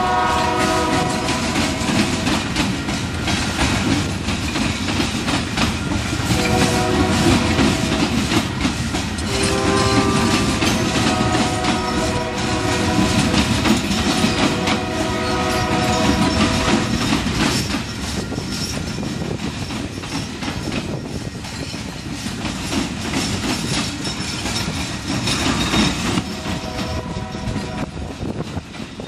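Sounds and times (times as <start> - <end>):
locomotive horn: 0.0 - 2.6, 6.3 - 8.3, 9.2 - 17.1, 26.2 - 28.1
train wheels rumbling over rails: 0.0 - 29.0.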